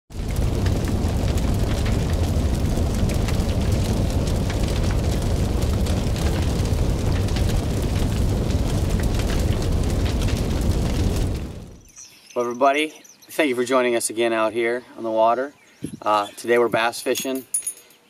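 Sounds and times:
fire rumbling and crackling: 0.1s - 12.0s.

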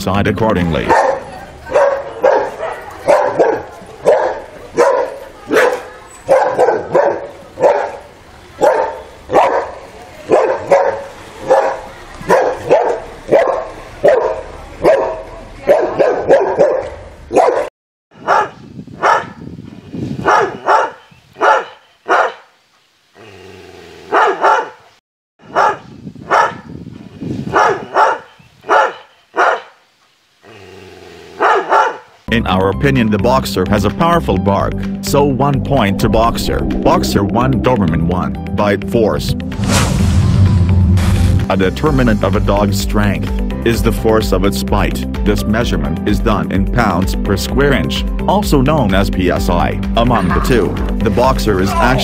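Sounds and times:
dog barking in short runs: 0.9s - 8.0s, 8.6s - 19.4s, 20.2s - 22.5s, 24.1s - 24.8s, 25.5s - 26.7s, 27.5s - 29.8s, 31.4s - 32.1s
dog barking: 0.9s - 19.4s, 20.2s - 22.5s, 24.1s - 26.7s, 27.5s - 29.8s, 31.4s - 32.2s.

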